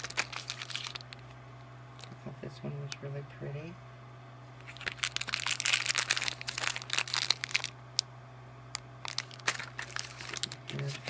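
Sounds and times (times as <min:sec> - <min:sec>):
plastic packaging crinkling: 0:00.0 - 0:01.4, 0:04.6 - 0:07.8, 0:09.0 - 0:11.0.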